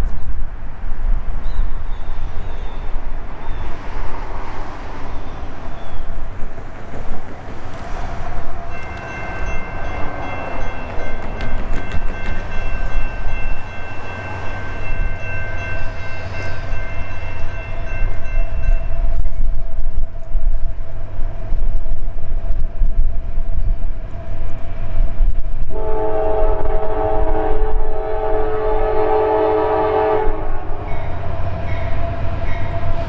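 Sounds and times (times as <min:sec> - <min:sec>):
locomotive air horn chord: 0:25.7 - 0:33.0.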